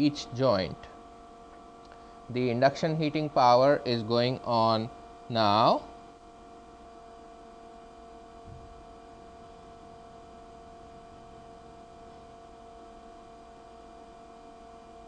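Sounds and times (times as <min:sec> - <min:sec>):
electrical hum with tones: 0:00.0 - 0:15.0
faint low thump: 0:08.4 - 0:08.7.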